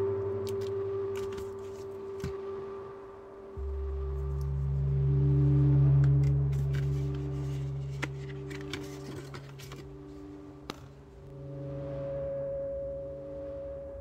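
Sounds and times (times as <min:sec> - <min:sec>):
ambient droning music: 0:00.0 - 0:14.0
book rustling and clicks: 0:00.5 - 0:02.4, 0:06.5 - 0:11.0.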